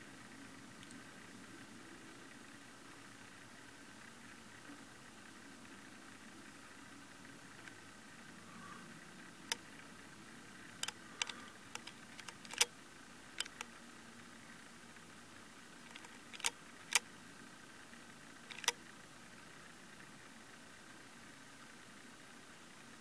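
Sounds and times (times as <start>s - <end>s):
faint steady hiss: 0.0s - 23.0s
sharp clicks and knocks: 10.8s - 12.7s, 13.4s - 13.7s, 15.9s - 17.0s, 18.5s - 18.8s.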